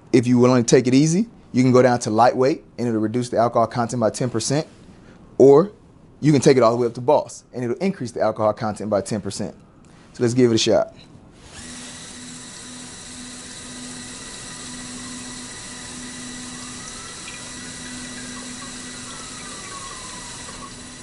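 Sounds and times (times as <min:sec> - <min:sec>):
low pump hum: 0:11.5 - 0:21.0
liquid pouring into a glass: 0:14.5 - 0:21.0.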